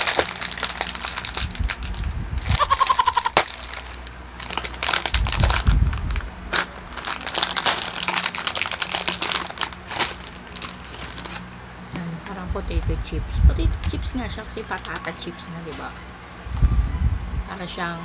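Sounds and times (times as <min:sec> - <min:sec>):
chip bag crinkling: 0:00.0 - 0:11.6, 0:13.8 - 0:15.6.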